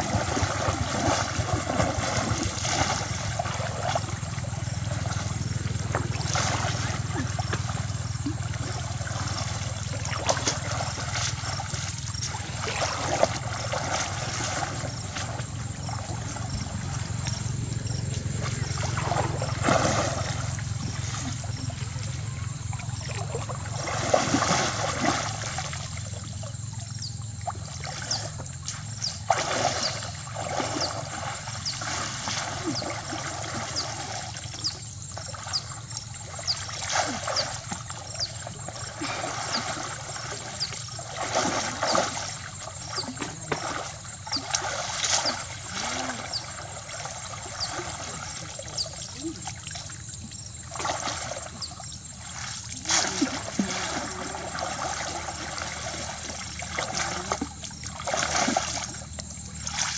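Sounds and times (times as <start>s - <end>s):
muddy water splashing and sloshing: 0.0s - 59.9s
water trickling and draining: 0.0s - 59.9s.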